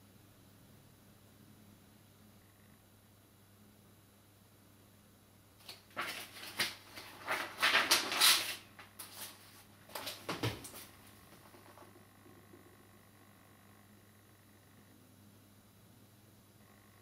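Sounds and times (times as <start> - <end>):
paper pages rustling: 5.6 - 11.8.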